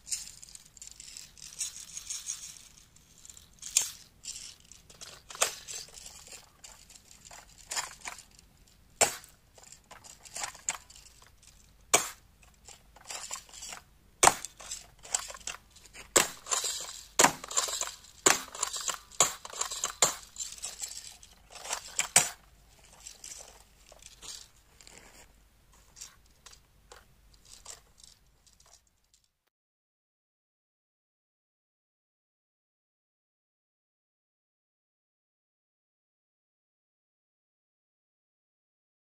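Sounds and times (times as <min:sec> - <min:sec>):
plastic clacking and rattling: 0:00.1 - 0:29.3.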